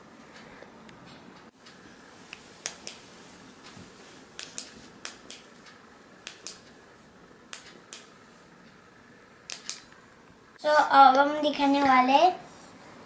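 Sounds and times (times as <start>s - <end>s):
flashlight switch double clicks: 9.5s - 9.9s.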